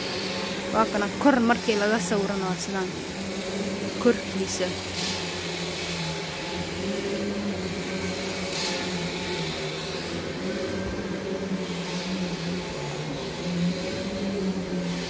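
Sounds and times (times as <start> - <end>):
vacuum cleaner running: 0.0 - 15.0.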